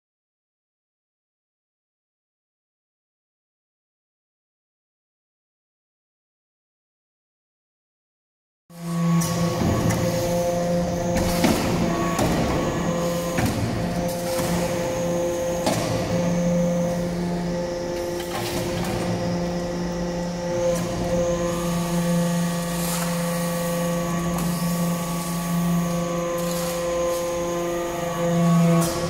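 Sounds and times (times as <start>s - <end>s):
hydraulic unit hum: 8.8s - 29.0s.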